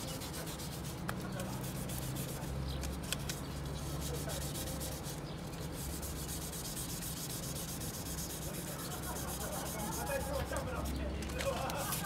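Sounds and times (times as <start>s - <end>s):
wet sandpaper rubbing plastic: 0.0s - 12.0s.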